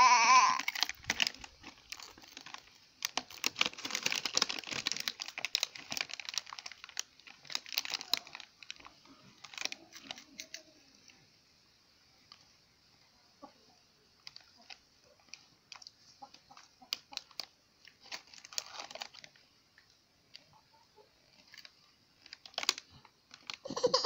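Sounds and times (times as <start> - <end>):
child crying: 0.0 - 0.7, 23.7 - 24.0
foil snack packet crinkling: 0.1 - 11.2, 14.2 - 19.5, 21.3 - 24.0.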